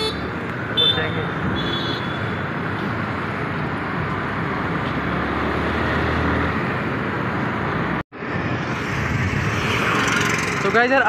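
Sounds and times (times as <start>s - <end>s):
scooter road noise: 0.0s - 11.0s
wind rushing: 8.2s - 10.7s.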